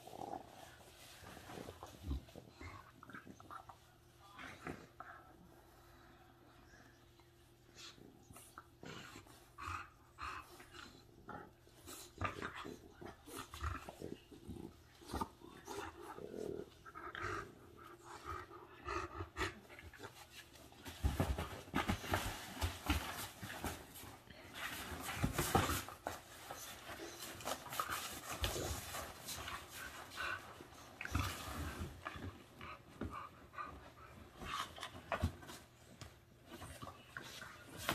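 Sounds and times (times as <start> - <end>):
dogs panting and breathing noisily: 4.8 - 37.9
dogs scuffling: 20.0 - 33.0.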